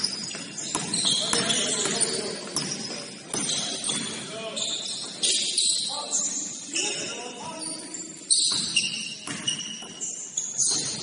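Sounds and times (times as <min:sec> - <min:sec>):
ball bouncing: 0:00.0 - 0:04.2, 0:08.4 - 0:10.0
sneakers squeaking on court floor: 0:00.0 - 0:11.0
players' voices: 0:00.6 - 0:08.3.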